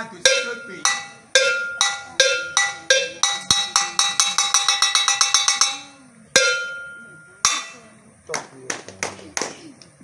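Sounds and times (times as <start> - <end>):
hand bell struck with stick: 0.3 - 8.0.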